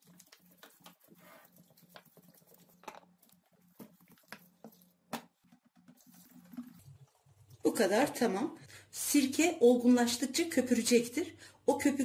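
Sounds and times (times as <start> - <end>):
small clicks and splashes: 0.0 - 7.7
water pouring into glass jar: 5.9 - 7.7.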